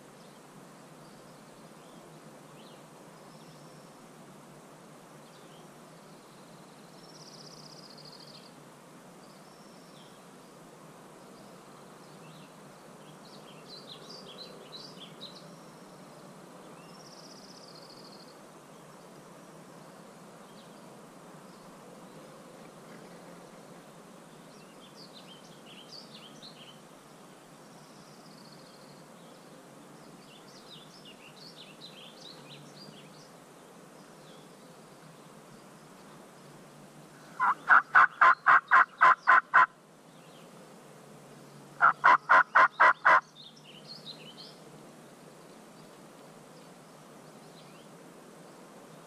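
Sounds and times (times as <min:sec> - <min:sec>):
faint songbird chirps: 0:00.0 - 0:04.2, 0:05.1 - 0:49.0
turkey-style yelps: 0:37.4 - 0:39.7, 0:41.8 - 0:43.2.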